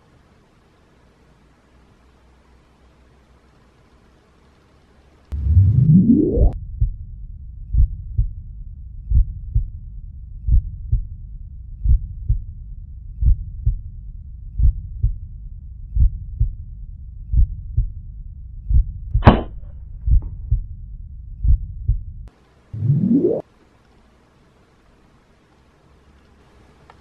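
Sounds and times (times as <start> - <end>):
heartbeat thumps: 5.4 - 7.0, 7.7 - 8.4, 9.0 - 9.8, 10.4 - 11.2, 11.8 - 12.5, 13.1 - 13.9, 14.5 - 15.3, 15.9 - 16.6, 17.2 - 18.0, 18.6 - 20.8, 21.4 - 23.1
air rifle shot crack: 19.2 - 19.8.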